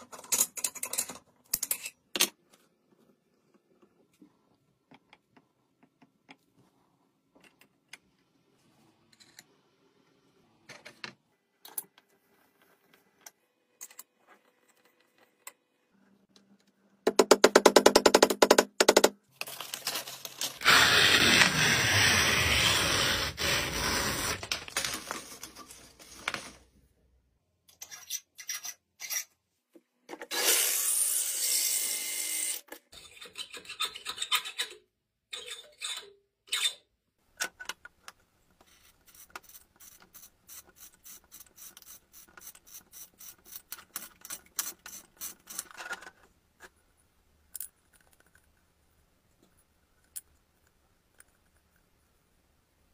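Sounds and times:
sandpaper rubbing and scraping: 20.6 - 24.5.

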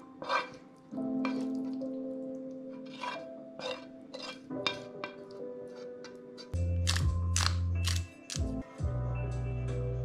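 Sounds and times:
utensil scraping a frying pan: 0.0 - 1.9, 2.6 - 6.6
soft background music: 0.0 - 10.0.

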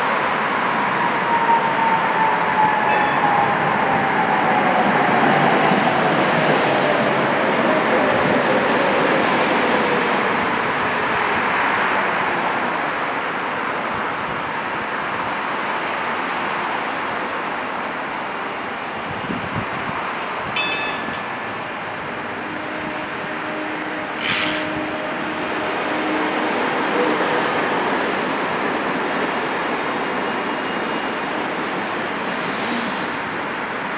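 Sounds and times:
tram rolling rumble: 0.0 - 33.9
short ringing clang: 20.6 - 21.6.

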